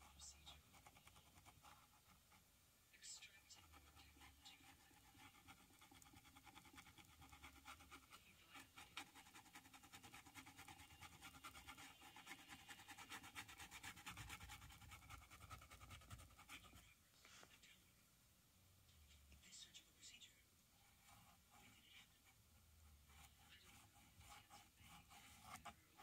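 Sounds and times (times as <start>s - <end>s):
paintbrush scratching on canvas: 0.0s - 2.5s, 3.1s - 17.5s, 20.8s - 26.0s.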